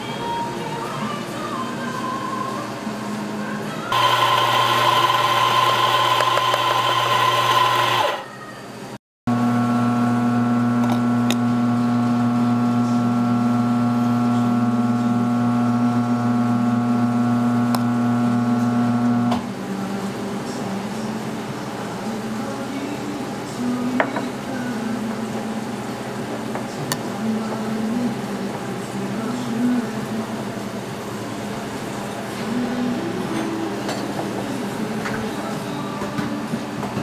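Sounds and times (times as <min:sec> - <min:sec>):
motor hum: 0:03.9 - 0:08.2, 0:09.3 - 0:19.4
small electric motor whirring: 0:03.9 - 0:08.2.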